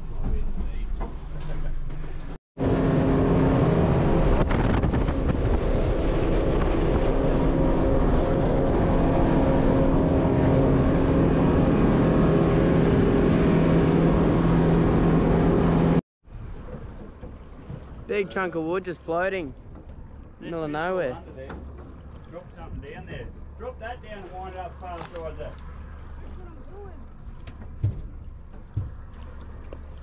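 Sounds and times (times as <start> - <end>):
motorboat engine drone: 2.6 - 18.0, 25.5 - 30.0
water rushing along hull: 2.6 - 30.0.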